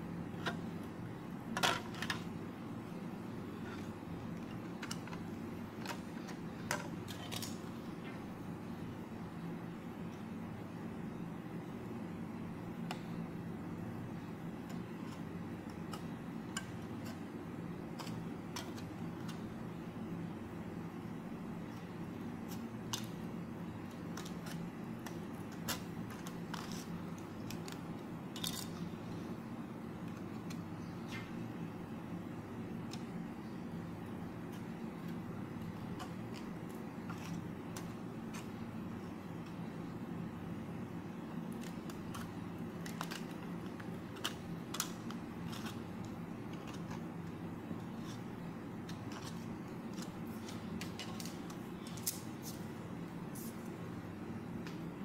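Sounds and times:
steady low hum: 0.0s - 55.0s
scissors snipping plastic disc: 17.9s - 19.4s, 22.5s - 28.8s, 41.4s - 47.1s.

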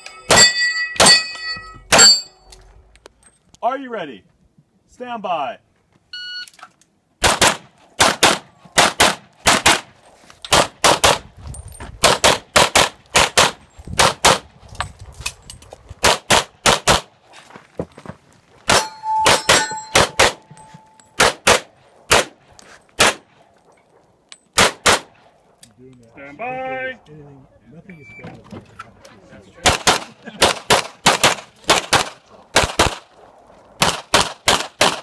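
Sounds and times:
steel target ringing: 0.0s - 2.5s, 18.7s - 21.2s
rapid pistol fire: 7.2s - 9.9s, 10.5s - 11.2s, 24.6s - 25.1s, 29.6s - 33.1s, 33.8s - 35.0s.

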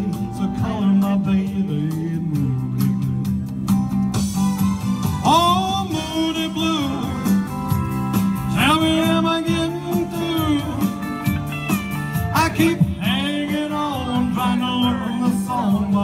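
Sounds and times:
man singing into a microphone: 0.0s - 3.2s, 5.2s - 7.7s, 8.4s - 11.3s, 12.2s - 16.0s
backing track with guitar and beat: 0.0s - 16.0s.

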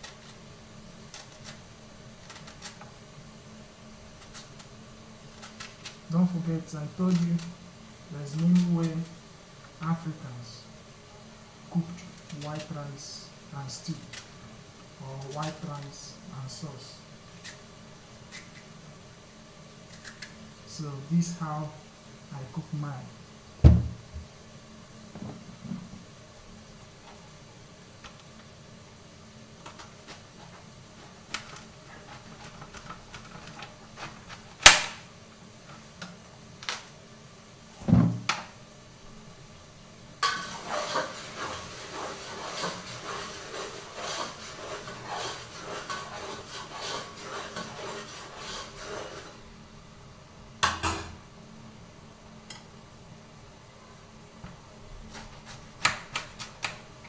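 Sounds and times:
dull thud: 23.6s - 24.3s
pots and utensils clattering: 40.2s - 49.4s
knife cutting cabbage on metal tray: 55.1s - 56.8s.

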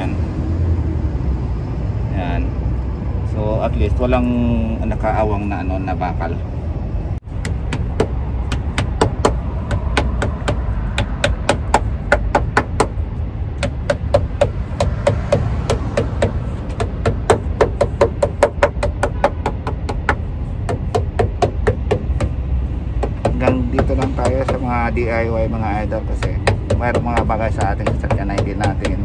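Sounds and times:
steady low rumble: 0.0s - 29.0s.

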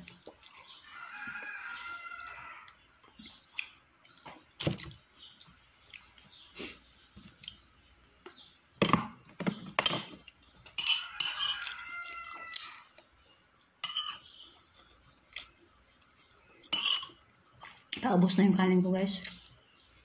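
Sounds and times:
rooster crowing: 0.8s - 2.8s, 10.8s - 13.0s
spoon clinking on plate: 9.8s - 11.8s, 13.8s - 14.3s, 16.7s - 17.2s.

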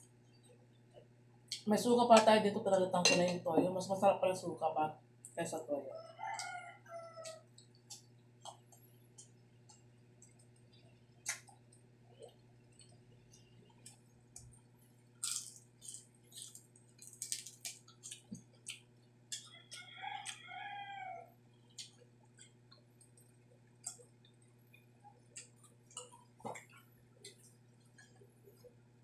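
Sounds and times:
rooster crowing: 5.9s - 7.5s, 19.4s - 21.4s
crunchy chewing: 6.1s - 28.8s.

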